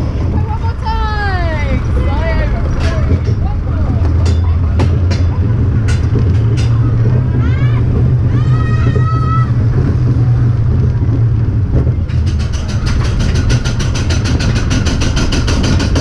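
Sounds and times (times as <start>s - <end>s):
roller coaster rumbling on track: 0.0s - 16.0s
ratchet clicking clatter: 12.1s - 16.0s.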